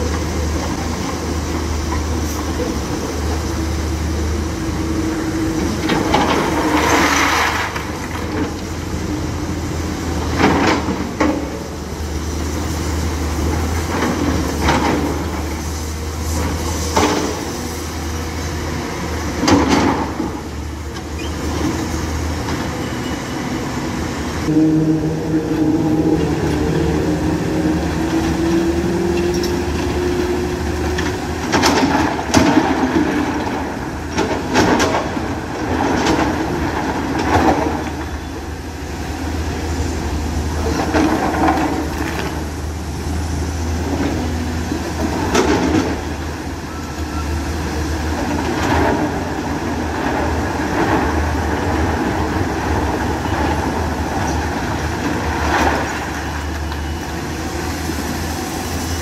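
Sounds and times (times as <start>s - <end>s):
excavator diesel engine running: 0.0s - 59.0s
clanks and rattles of steel and rock: 30.9s - 38.1s.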